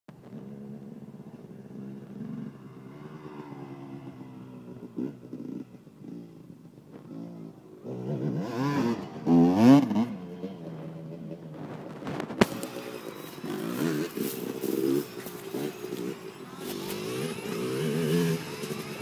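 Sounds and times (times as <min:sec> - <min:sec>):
dirt bike engine revving: 0:07.1 - 0:19.0.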